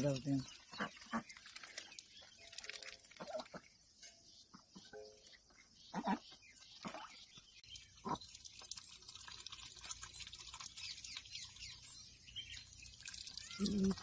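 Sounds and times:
water splashing: 0.0 - 3.6, 6.7 - 14.0.

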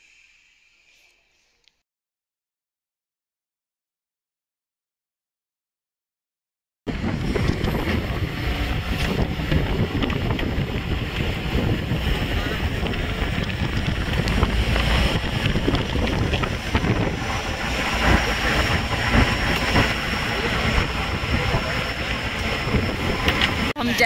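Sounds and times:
motorboat engine running: 6.9 - 24.0
wind buffeting microphone: 6.9 - 24.0.

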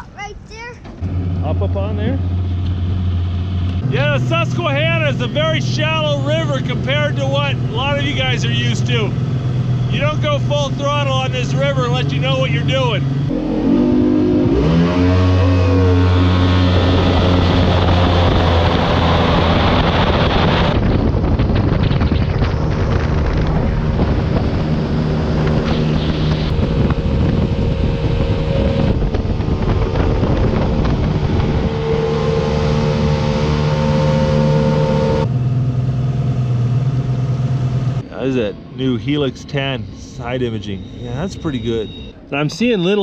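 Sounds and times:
outboard motor: 0.8 - 42.8
wind and water rush: 16.5 - 34.9.

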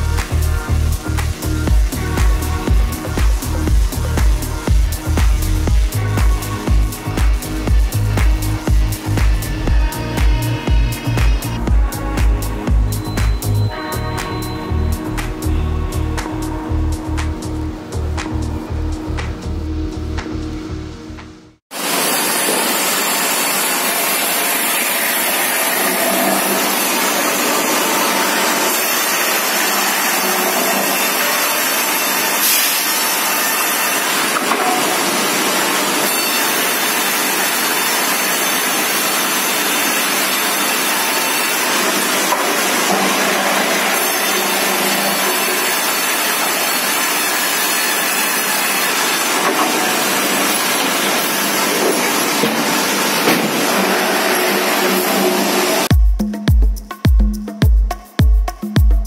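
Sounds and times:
saw cutting a log: 21.7 - 55.9
mill machinery running: 21.8 - 55.9.

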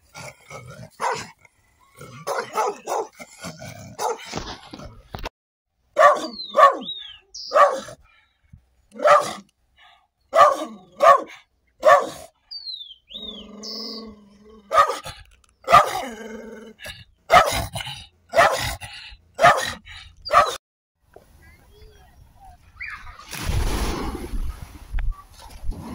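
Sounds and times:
dog barking fiercely: 0.9 - 1.4, 2.2 - 3.2, 3.9 - 4.3, 6.0 - 8.0, 9.0 - 9.4, 10.3 - 12.3, 14.6 - 16.1, 17.3 - 20.6.

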